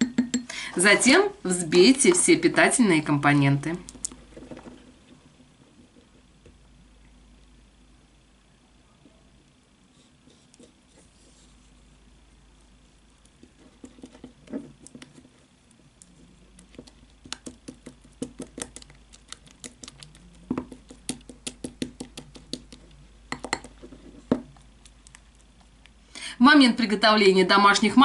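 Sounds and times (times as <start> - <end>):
fork tapping glass bowl: 0.0 - 0.5, 23.3 - 23.8.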